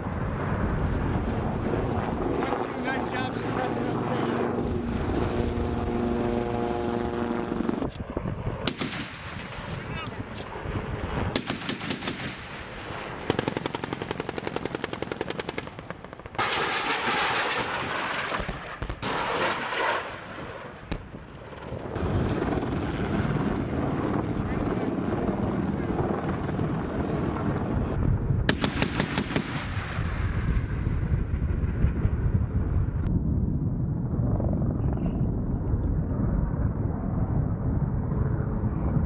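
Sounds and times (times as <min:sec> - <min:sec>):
helicopter rotor noise: 0:00.0 - 0:17.8
loud rushing blast: 0:08.6 - 0:10.0
rapid gunfire bursts: 0:11.4 - 0:12.5, 0:13.3 - 0:17.7, 0:28.5 - 0:29.7.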